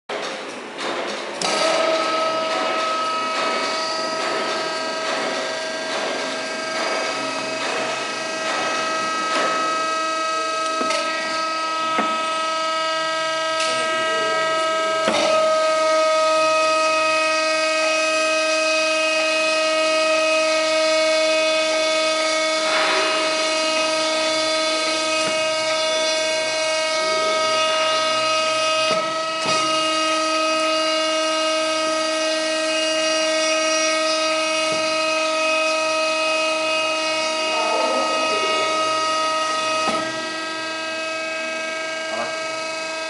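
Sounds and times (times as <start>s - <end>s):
hydraulic drive whine: 0.1s - 43.0s.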